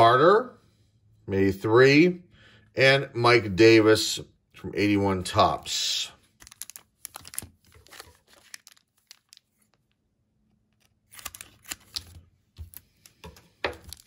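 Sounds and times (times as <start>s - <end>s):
wrapper crinkling: 6.3s - 14.0s.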